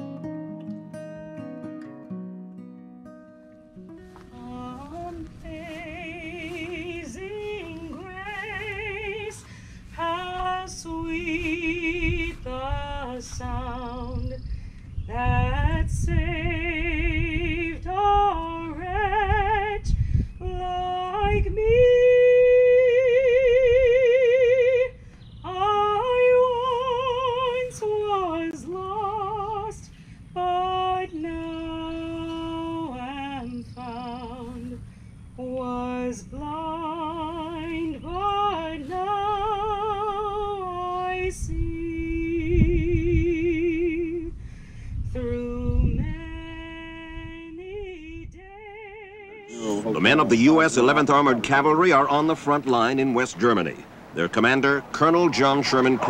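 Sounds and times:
woman singing with vibrato: 4.1 - 14.5, 15.1 - 44.4, 45.1 - 50.7
wind rumble on microphone: 4.4 - 29.7, 35.4 - 52.3.

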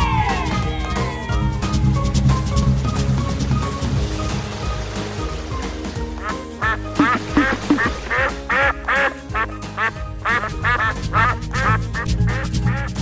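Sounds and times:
background music: 0.0 - 13.0
duck quacking: 6.2 - 13.0.

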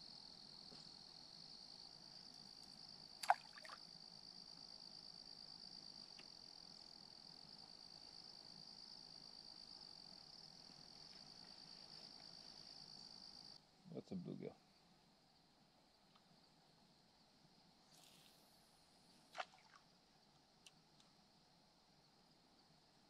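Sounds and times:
crickets trilling: 0.0 - 23.0
plop in water: 3.2 - 3.8, 19.3 - 19.8.

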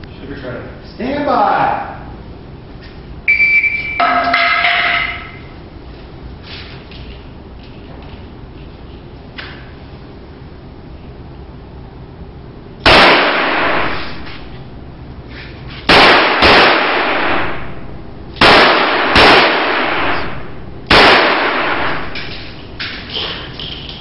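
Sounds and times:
echoing pistol shots: 12.8 - 14.1, 15.9 - 17.8, 18.4 - 22.2.

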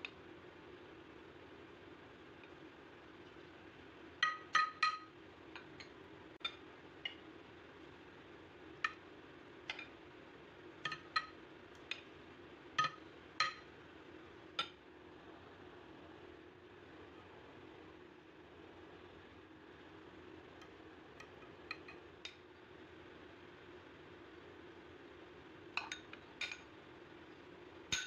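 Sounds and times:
faint steady hum: 0.0 - 28.0
spoon clinking against glass dish: 4.2 - 5.1.

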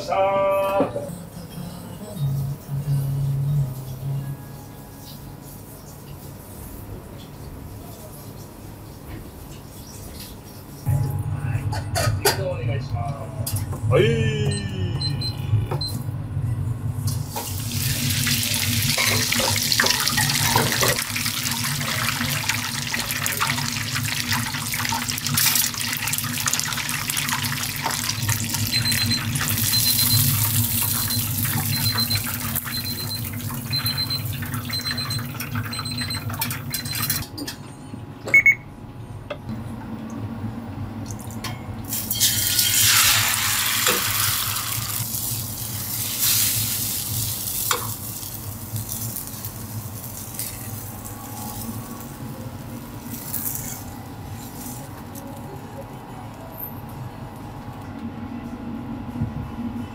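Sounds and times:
kitchen timer beeping: 14.4 - 16.0, 28.1 - 37.2, 38.3 - 38.7
oil sizzling in deep fryer: 17.0 - 37.2, 41.2 - 52.4
liquid sizzling in hot wok: 17.1 - 35.4, 41.9 - 52.2.

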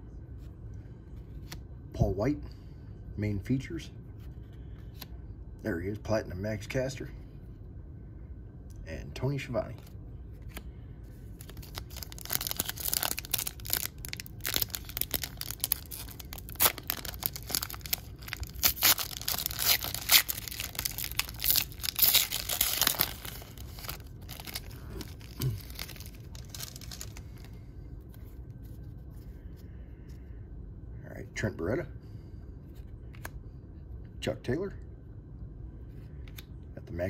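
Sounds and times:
foil wrapper crackling and ripping: 11.4 - 27.5.

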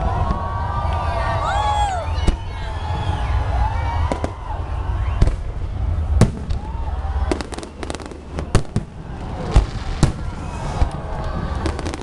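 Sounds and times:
fireworks bangs: 0.0 - 12.0
low rumble: 0.0 - 12.0
fireworks popping: 5.1 - 12.0.

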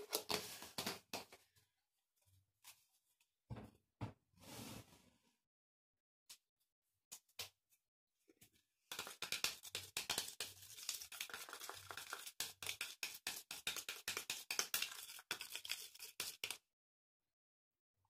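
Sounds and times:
scissors stirring sticky slime: 9.0 - 16.6.

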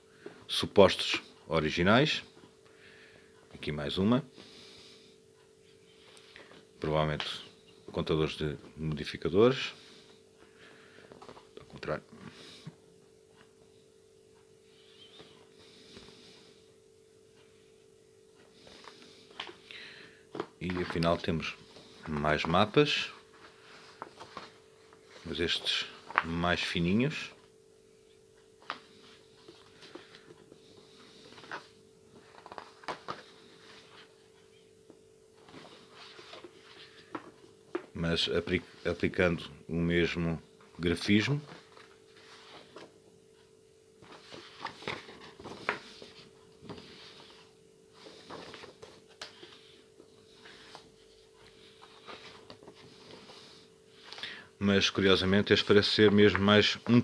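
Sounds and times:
faint steady hum: 0.0 - 57.0
paper rustling and crinkling: 20.3 - 21.2, 21.8 - 26.4, 31.2 - 34.2, 44.0 - 49.6.

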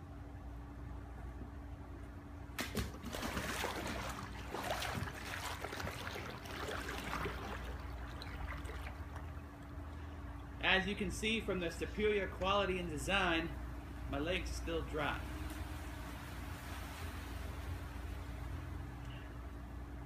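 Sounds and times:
steady low hum: 0.0 - 20.0
water splashing and sloshing: 2.5 - 10.8, 12.0 - 19.1.

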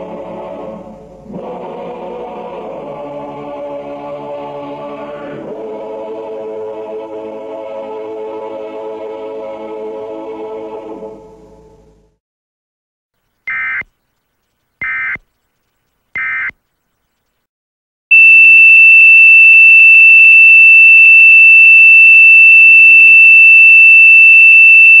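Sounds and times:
high-pitched test tone: 18.1 - 25.0.

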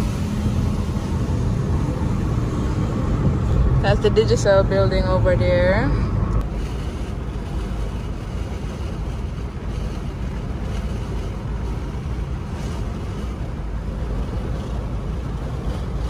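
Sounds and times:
car road noise from inside: 0.0 - 16.0.

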